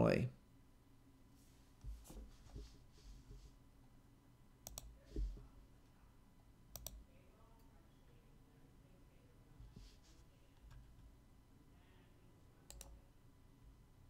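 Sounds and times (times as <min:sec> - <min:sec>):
soft low thumps: 0:05.0 - 0:05.6.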